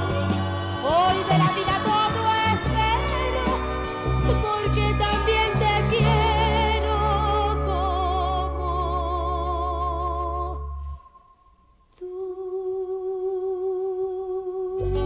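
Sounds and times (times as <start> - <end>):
sustained musical accompaniment: 0.0 - 11.0
woman singing with vibrato: 0.0 - 15.0.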